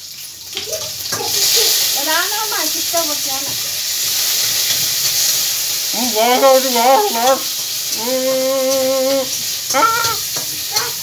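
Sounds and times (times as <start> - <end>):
food sizzling in a pan: 0.0 - 11.0
person making wordless vocal sounds: 5.9 - 11.0.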